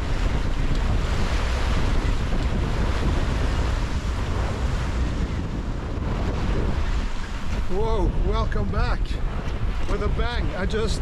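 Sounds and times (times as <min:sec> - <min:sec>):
water splashing along hull: 0:00.0 - 0:11.0
wind buffeting microphone: 0:00.0 - 0:11.0.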